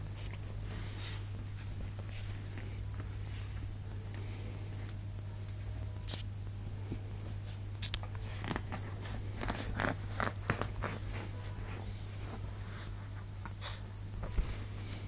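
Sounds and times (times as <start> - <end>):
paws scuffing on bedding: 0.0 - 3.8, 6.9 - 15.0
steady low hum: 0.0 - 15.0.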